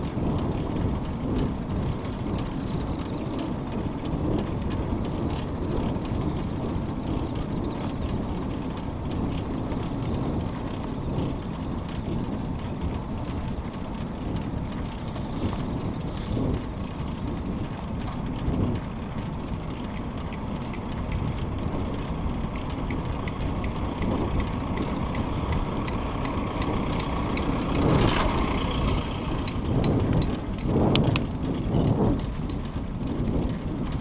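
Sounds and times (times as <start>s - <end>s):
wind and road noise: 0.0s - 34.0s
light ticks: 19.8s - 21.6s, 22.5s - 27.9s.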